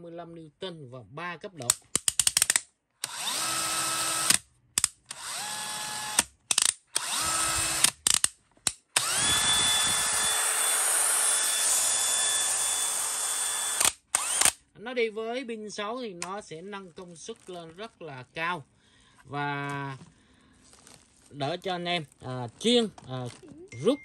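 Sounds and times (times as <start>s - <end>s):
drill trigger clicks: 1.6s - 8.3s, 8.9s - 14.6s
cordless drill whining: 3.0s - 4.4s, 5.0s - 6.3s, 6.9s - 8.0s, 9.0s - 14.6s.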